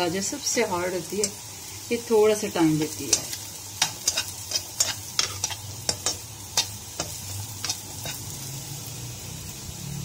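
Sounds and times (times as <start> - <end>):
carrots sizzling in oil: 0.0 - 10.0
spatula scraping and tapping pan: 2.8 - 8.4.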